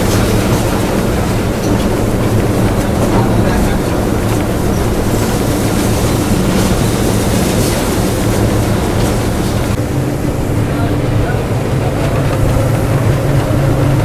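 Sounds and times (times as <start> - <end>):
faint clicks over rails: 0.0 - 9.8
locomotive engine drone: 0.0 - 14.0
wheel and rail noise: 0.0 - 14.0.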